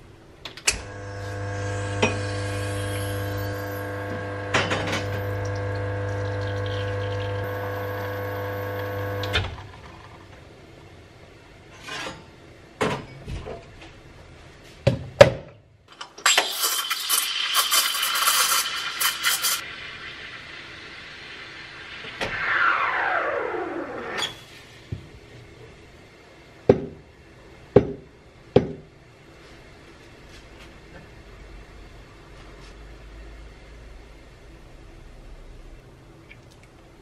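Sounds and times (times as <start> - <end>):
espresso machine motor hum: 0.9 - 9.8
hissing water discharge: 16.4 - 24.0.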